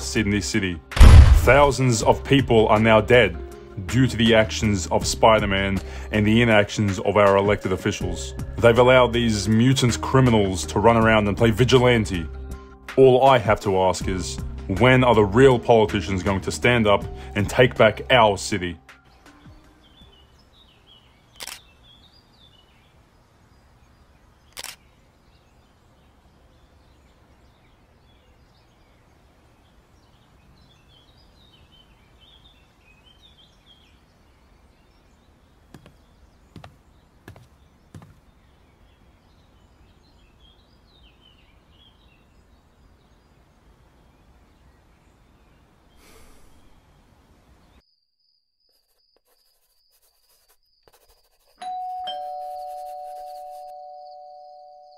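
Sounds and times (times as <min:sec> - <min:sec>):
birds chirping: 0:00.0 - 0:03.2, 0:14.8 - 0:47.9
camera shutter clicks: 0:01.0 - 0:01.6, 0:21.4 - 0:21.7, 0:24.5 - 0:24.8.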